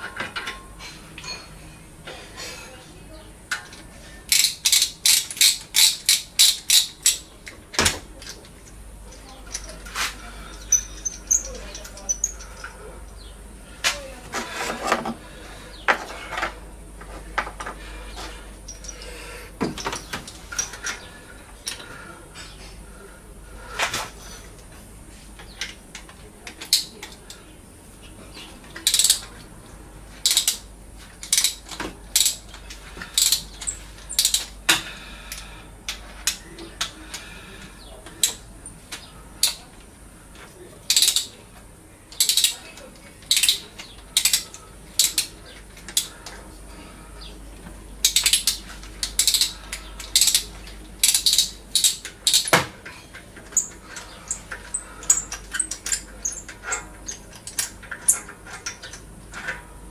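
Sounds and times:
ratchet wrench clicking: 4.3s - 7.2s, 28.8s - 29.3s, 30.2s - 32.5s, 33.1s - 34.5s, 40.9s - 41.3s, 42.2s - 42.6s, 43.3s - 43.6s, 44.2s - 45.3s, 48.0s - 52.5s.

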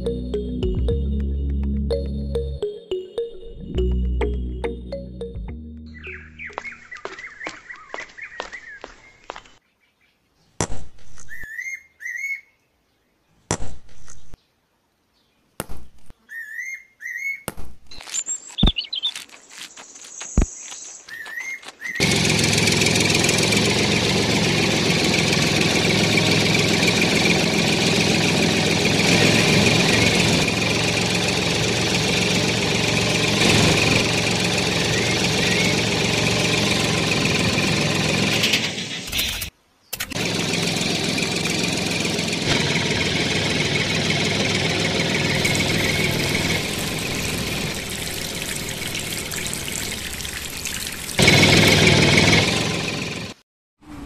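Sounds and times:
tractor engine running: 0.0s - 7.9s, 21.6s - 53.4s
bird chirps: 5.8s - 10.6s, 11.3s - 13.3s, 16.2s - 22.0s, 34.8s - 35.9s.

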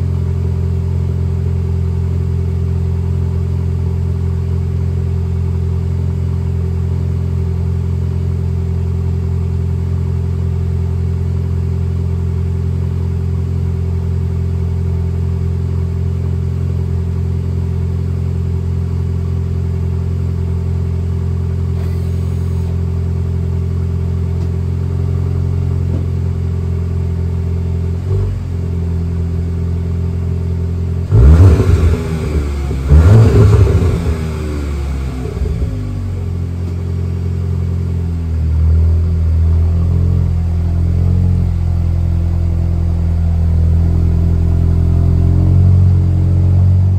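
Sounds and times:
car engine idling: 0.0s - 46.9s
engine revving: 31.0s - 36.3s.

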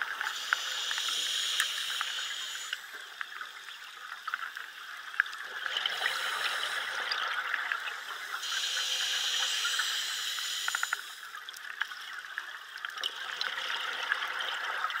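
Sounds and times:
scuba regulator breathing underwater: 0.3s - 2.9s, 5.9s - 7.1s, 8.4s - 11.2s.

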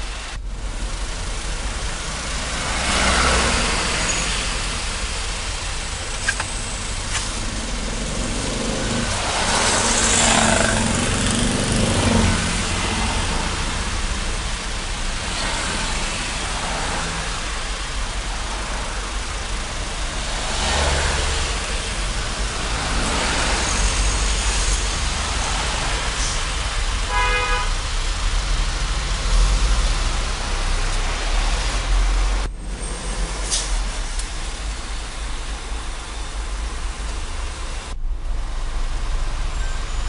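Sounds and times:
engine and road rumble: 0.0s - 40.0s
car horn toot: 27.1s - 27.8s.

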